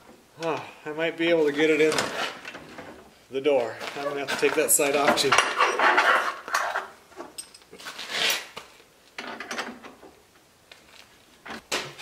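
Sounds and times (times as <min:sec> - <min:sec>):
metal parts scraping and knocking: 0:04.7 - 0:08.5.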